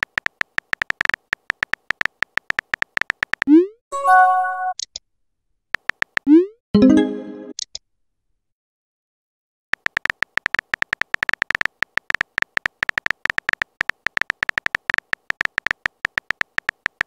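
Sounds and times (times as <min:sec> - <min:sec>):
phone keyboard clicks: 0:00.0 - 0:03.5, 0:05.8 - 0:06.3, 0:09.8 - 0:17.0.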